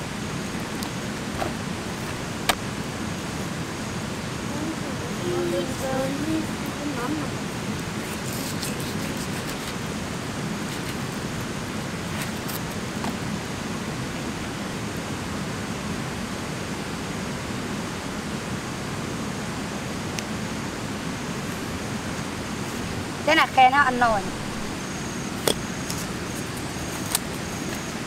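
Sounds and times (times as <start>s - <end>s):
steady rushing noise: 0.0s - 28.0s
knife cutting raw meat: 8.0s - 9.9s.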